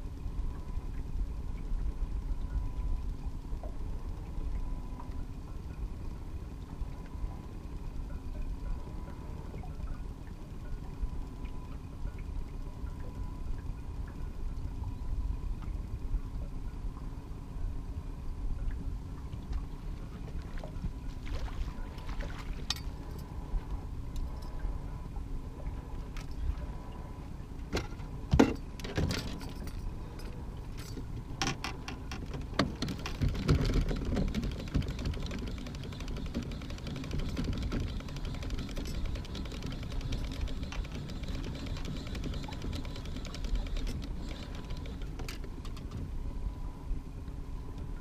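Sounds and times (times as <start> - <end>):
steady low rumble: 0.0 - 28.8
fishing gear clattering in metal boat: 27.7 - 46.1.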